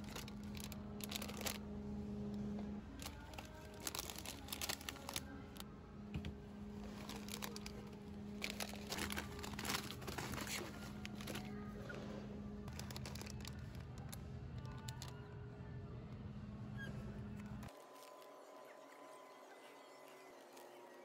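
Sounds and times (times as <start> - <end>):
crinkling and rustling: 0.0 - 1.7, 2.5 - 5.6, 6.2 - 15.2
steady low hum: 0.0 - 17.7.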